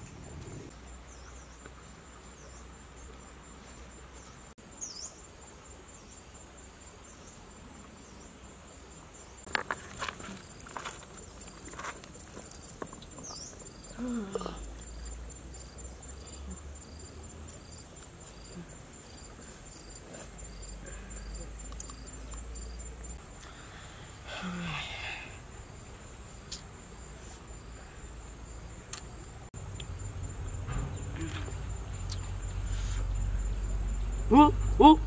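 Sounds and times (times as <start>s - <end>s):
cricket chirping: 0.0s - 35.0s
insect drone: 0.0s - 35.0s
bare feet on river stones: 9.5s - 13.3s.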